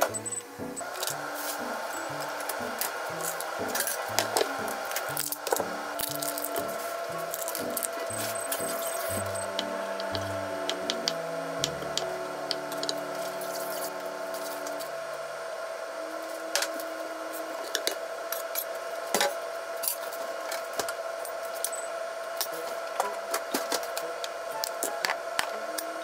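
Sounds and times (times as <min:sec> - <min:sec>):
utensils clinking: 0:00.0 - 0:14.9.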